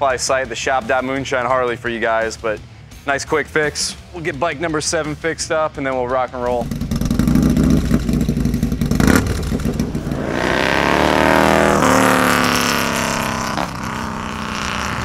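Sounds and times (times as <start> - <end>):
motorcycle engine rumbling past: 6.5 - 15.0.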